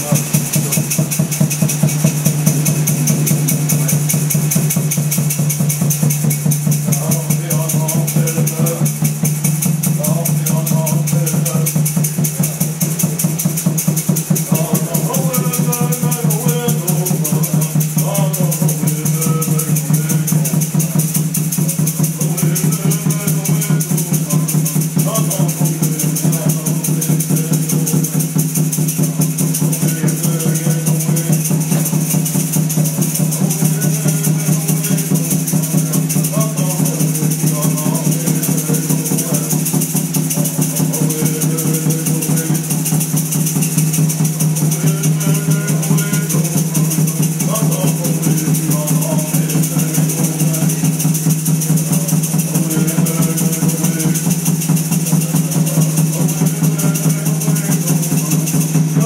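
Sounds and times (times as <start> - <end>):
fast shaker rhythm: 0.0 - 59.0.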